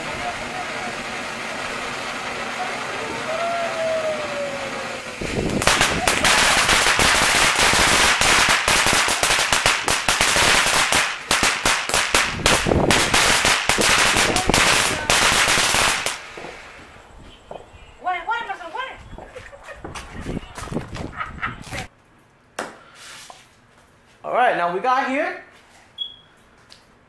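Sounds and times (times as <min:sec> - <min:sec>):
firework crackling: 0:00.0 - 0:17.0.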